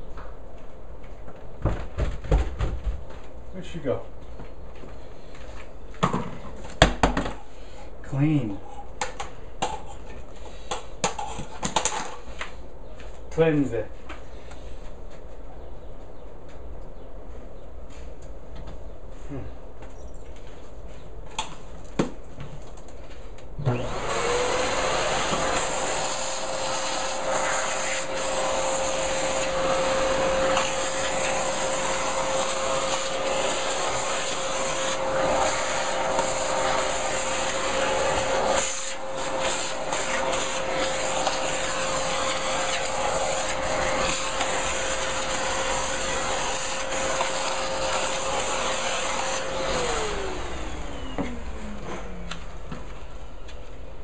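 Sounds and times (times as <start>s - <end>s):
vacuum cleaner switch: 23.6s - 52.9s
vacuum cleaner motor whine: 23.6s - 53.9s.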